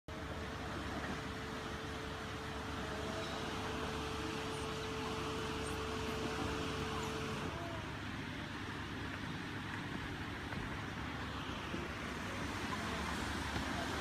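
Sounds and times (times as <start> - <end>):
mid-pitched whine: 0.1 - 9.0
boat engine idling: 0.1 - 14.0.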